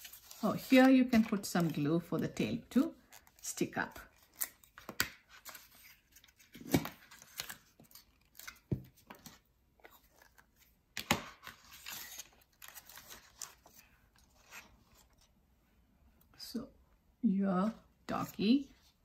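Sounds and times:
paper rustling and crinkling: 0:03.1 - 0:15.3.

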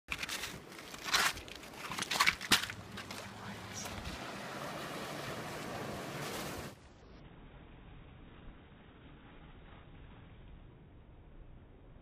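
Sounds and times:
vehicle driving through water: 0:03.3 - 0:06.8.

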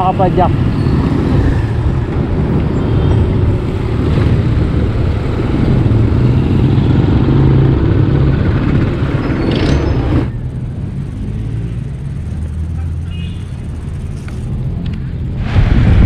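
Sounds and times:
motorcycle engines in traffic: 0:00.0 - 0:16.0
wind rumble on microphone: 0:00.5 - 0:10.3, 0:14.6 - 0:16.0.

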